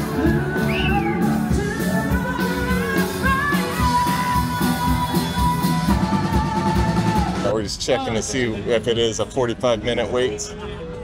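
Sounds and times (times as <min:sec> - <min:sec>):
person singing: 0:00.0 - 0:07.4
live rock band playing: 0:00.0 - 0:07.6
steady drum beat: 0:00.0 - 0:07.7.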